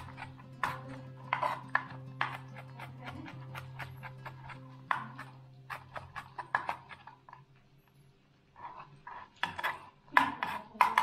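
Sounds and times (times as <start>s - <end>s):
knife chopping on cutting board: 0.0s - 7.2s, 9.4s - 11.0s.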